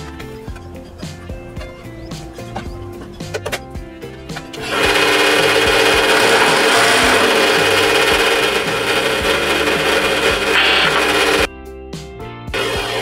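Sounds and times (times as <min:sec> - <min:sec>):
drill press grinding into metal: 0:04.3 - 0:11.5.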